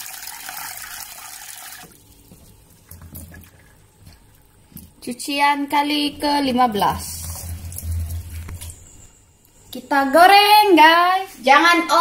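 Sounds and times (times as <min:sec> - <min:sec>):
tap water running into bowl: 0:00.0 - 0:04.5.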